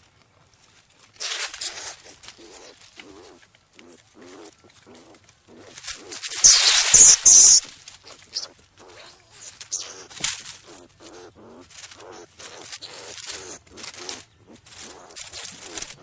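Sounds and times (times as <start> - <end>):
skunk squeaky calls: 1.2 - 16.0
skunk hissing: 5.5 - 16.0.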